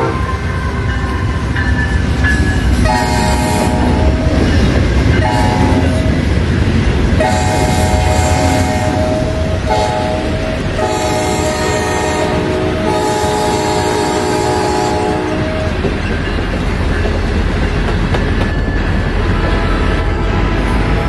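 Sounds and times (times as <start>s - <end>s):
passing train rumble: 0.0s - 21.0s
locomotive horn blasts: 2.8s - 4.2s, 5.2s - 6.1s, 7.2s - 15.8s.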